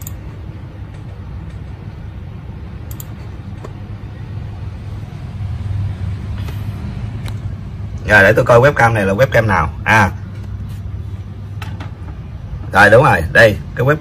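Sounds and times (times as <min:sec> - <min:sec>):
low background rumble: 0:00.0 - 0:14.0.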